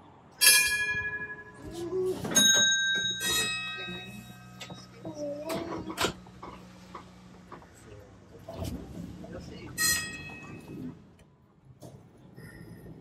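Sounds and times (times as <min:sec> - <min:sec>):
tram bell ringing: 0:00.4 - 0:06.1, 0:09.7 - 0:11.0.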